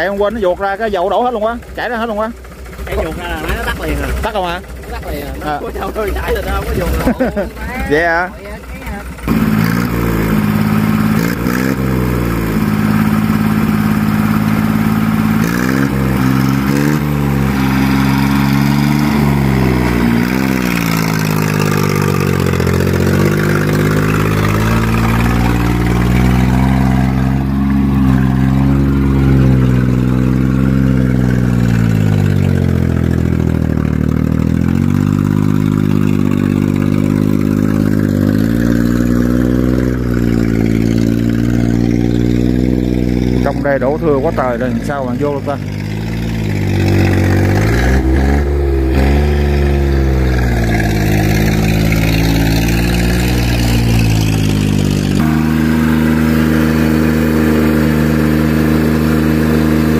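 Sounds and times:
diesel engine revving: 0.0s - 59.9s.

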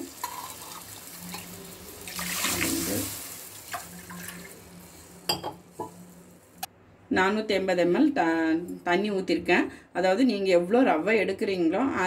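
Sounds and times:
water poured into hot pan splashing: 0.0s - 4.6s.

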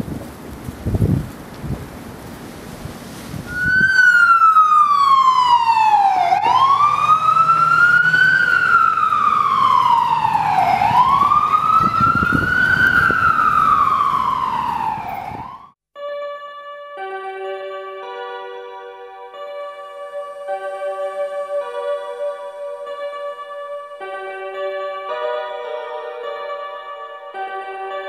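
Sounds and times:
wind on microphone: 0.0s - 7.5s, 8.2s - 15.7s
ambulance siren wailing: 3.5s - 15.8s.

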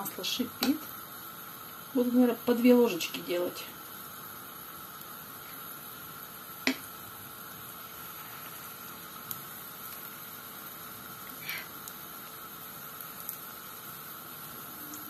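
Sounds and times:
oil sizzling in a frying pan: 0.0s - 15.0s.

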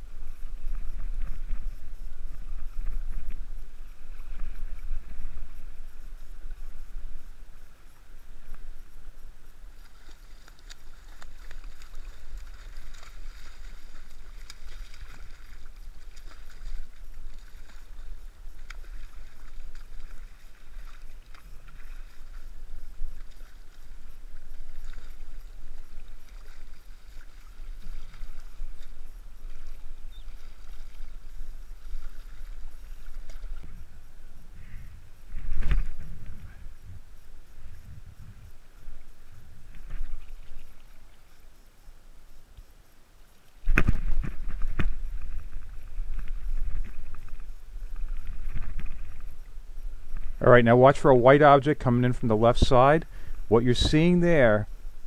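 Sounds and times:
water sloshing and splashing: 9.6s - 34.0s, 39.5s - 41.5s.

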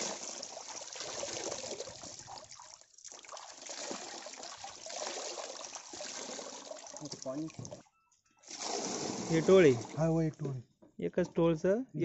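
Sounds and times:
water trickling and dripping: 0.0s - 7.8s.

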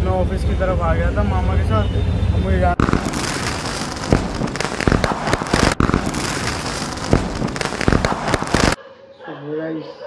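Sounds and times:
dense crackling and snapping noise: 2.8s - 8.8s.

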